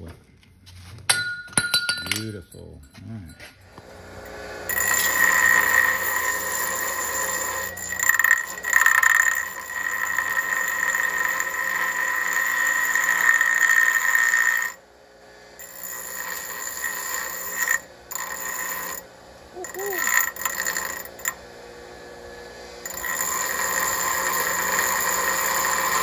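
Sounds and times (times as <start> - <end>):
metal grinding squeal: 4.7 - 14.8, 15.6 - 19.0, 22.8 - 26.0.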